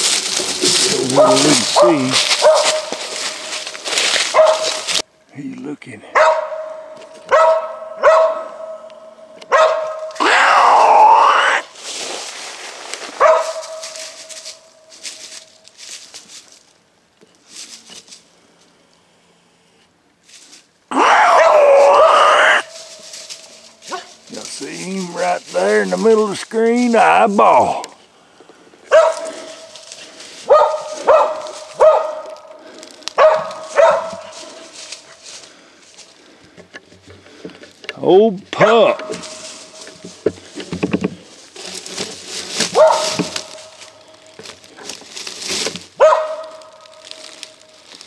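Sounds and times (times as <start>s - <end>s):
footsteps crunching through dry brush: 0.0s - 5.1s, 6.4s - 18.8s, 20.2s - 48.0s
dog barking: 1.1s - 3.0s, 4.3s - 4.9s, 6.1s - 8.9s, 9.5s - 10.2s, 13.2s - 13.9s, 28.9s - 29.4s, 30.5s - 32.6s, 33.2s - 34.3s, 42.7s - 43.4s, 46.0s - 46.7s.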